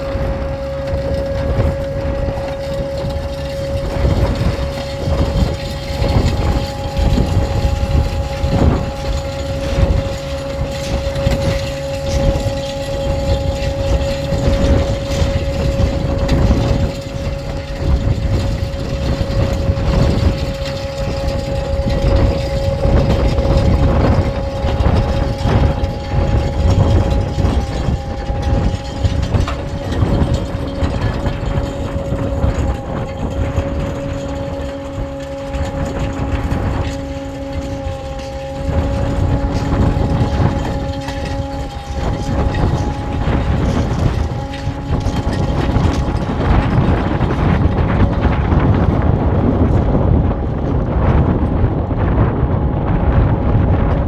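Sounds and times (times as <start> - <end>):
low hum: 0.0 - 54.0
tracked diesel tractor running: 0.0 - 54.0.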